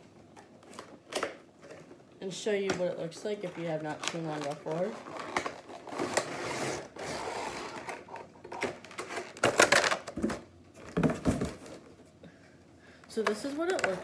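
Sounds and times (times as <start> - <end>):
packaging rustling and crackling: 3.4 - 11.8.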